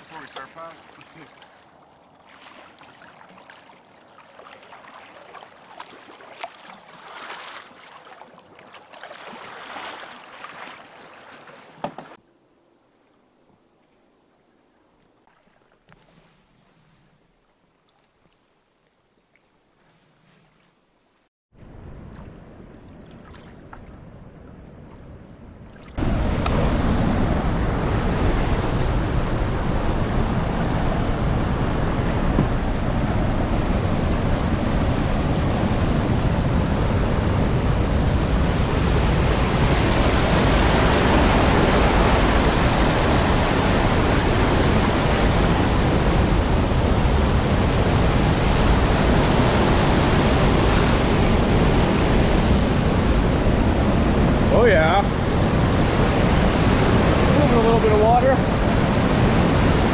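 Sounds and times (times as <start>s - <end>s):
water rushing through a dam: 0.0s - 1.7s
canoe paddling on water: 0.0s - 12.2s, 13.4s - 21.0s, 22.0s - 59.9s.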